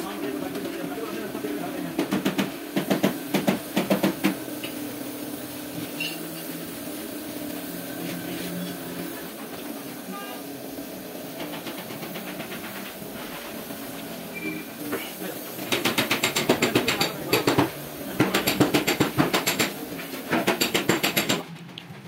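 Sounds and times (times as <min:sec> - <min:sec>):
spray gun hissing: 0:00.0 - 0:21.4.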